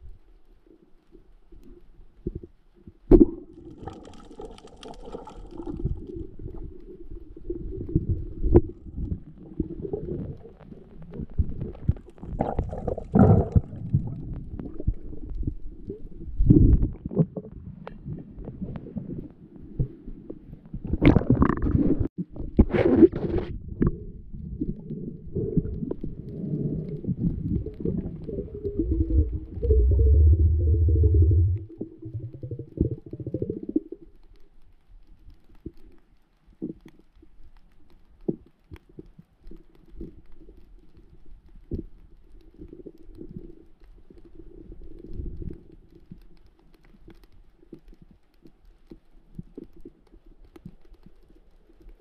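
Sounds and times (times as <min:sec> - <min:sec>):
muffled underwater rumbling: 0:00.0 - 0:34.6
bubbly gurgles: 0:03.1 - 0:19.2, 0:20.8 - 0:34.2.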